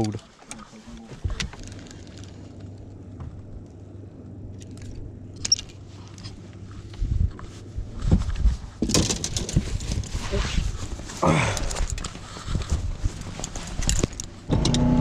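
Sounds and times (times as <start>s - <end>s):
boat motor humming: 0.0s - 6.8s, 14.5s - 15.0s
handling knocks and thumps: 8.0s - 14.4s.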